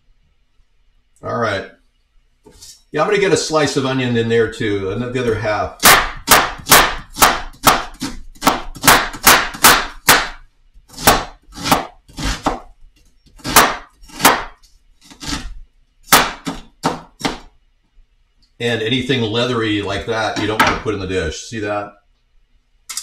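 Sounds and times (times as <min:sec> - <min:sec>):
knife chopping on wooden board: 0:05.8 - 0:12.7, 0:13.4 - 0:17.5.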